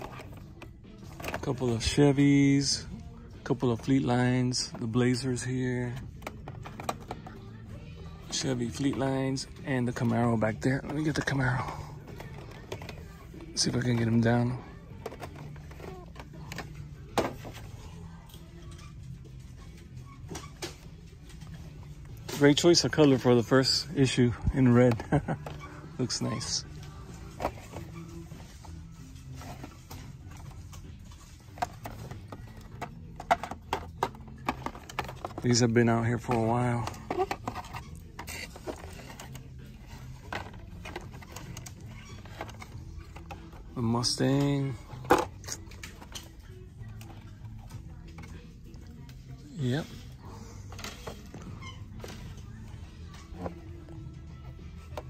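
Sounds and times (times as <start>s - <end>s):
plastic packaging clicking and rustling: 29.3s - 47.3s.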